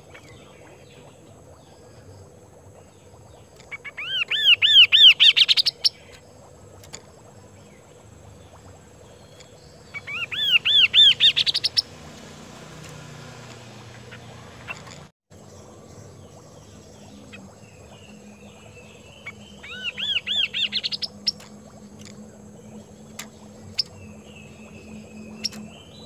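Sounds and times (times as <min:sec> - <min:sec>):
bird singing arched whistles: 0:03.8 - 0:06.1, 0:09.2 - 0:11.9, 0:17.0 - 0:21.4.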